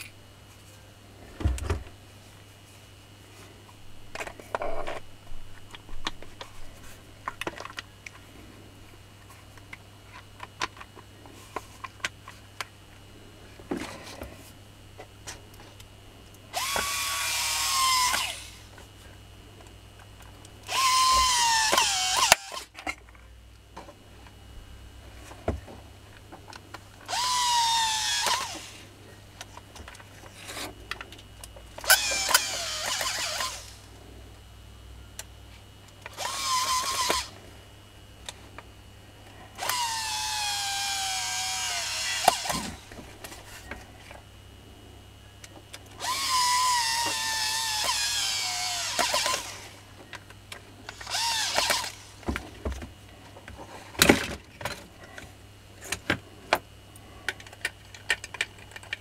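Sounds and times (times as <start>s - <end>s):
drill motor whining: 16.5s - 18.7s, 20.7s - 22.7s, 27.1s - 28.8s, 31.8s - 33.9s, 36.1s - 37.3s, 39.6s - 42.9s, 46.0s - 49.9s, 50.9s - 52.2s.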